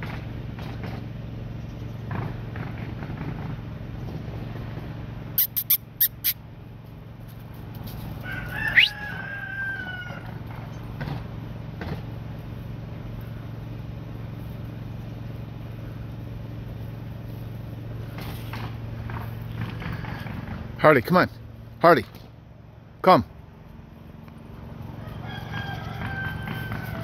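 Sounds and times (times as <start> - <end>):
steady low hum: 0.0 - 27.0
high-pitched animal cry: 5.4 - 6.4, 8.3 - 10.3.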